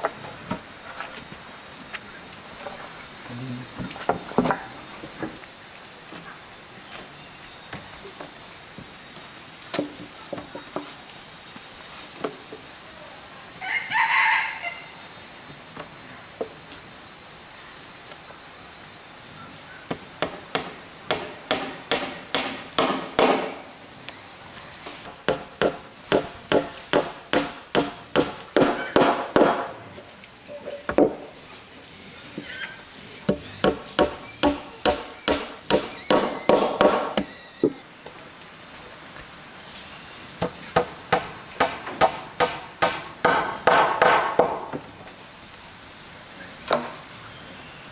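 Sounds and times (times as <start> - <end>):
rooster crowing: 13.6 - 15.0.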